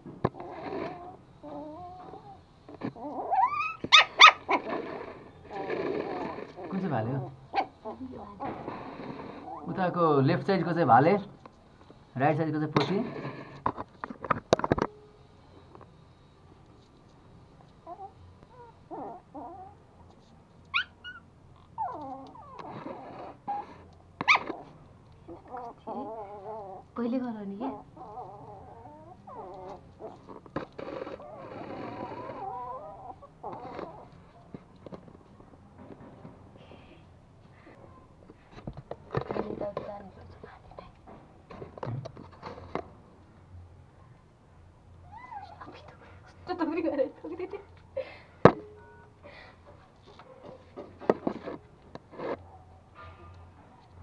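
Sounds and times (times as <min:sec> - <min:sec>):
puppies growling and whining: 0:00.4 - 0:09.8, 0:17.8 - 0:19.8, 0:20.7 - 0:27.0, 0:27.6 - 0:34.4, 0:45.0 - 0:45.8
puppy yips: 0:03.1 - 0:04.7, 0:20.7 - 0:24.7, 0:45.0 - 0:45.8.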